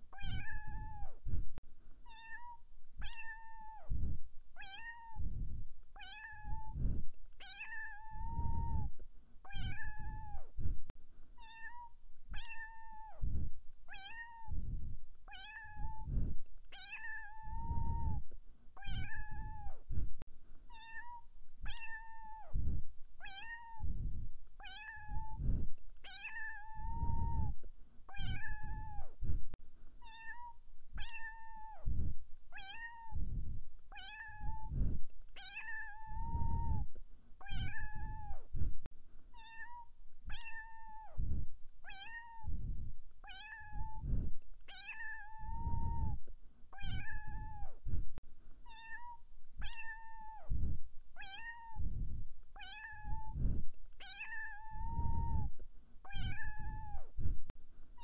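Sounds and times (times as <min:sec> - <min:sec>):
cat meowing: 0:00.2 - 0:01.2, 0:02.0 - 0:03.8, 0:04.6 - 0:05.2, 0:06.0 - 0:06.8, 0:07.4 - 0:08.9, 0:09.5 - 0:10.5, 0:11.4 - 0:13.2, 0:13.9 - 0:14.6, 0:15.3 - 0:16.1, 0:16.7 - 0:18.2, 0:18.8 - 0:19.8, 0:20.7 - 0:22.5, 0:23.2 - 0:23.9, 0:24.6 - 0:25.4, 0:26.0 - 0:29.2, 0:30.0 - 0:31.8, 0:32.5 - 0:33.2, 0:33.9 - 0:34.7, 0:35.4 - 0:38.5, 0:39.3 - 0:41.2, 0:41.8 - 0:42.5, 0:43.2 - 0:44.0, 0:44.7 - 0:46.2, 0:46.8 - 0:47.8, 0:48.6 - 0:50.5, 0:51.2 - 0:51.9, 0:52.6 - 0:53.4, 0:54.0 - 0:55.5, 0:56.1 - 0:57.1.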